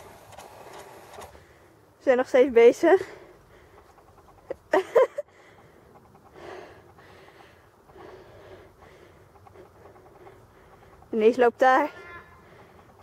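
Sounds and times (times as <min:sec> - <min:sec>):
faint breathy noise: 0:05.3 - 0:11.1
girl's voice: 0:11.2 - 0:12.5.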